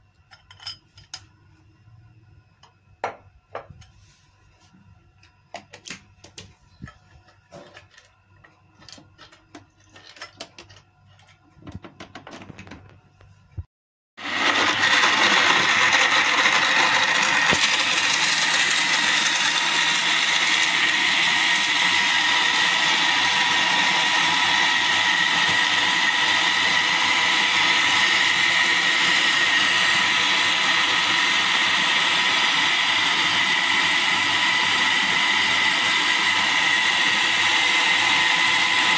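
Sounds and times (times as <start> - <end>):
electric blender whining: 14.2 - 38.9.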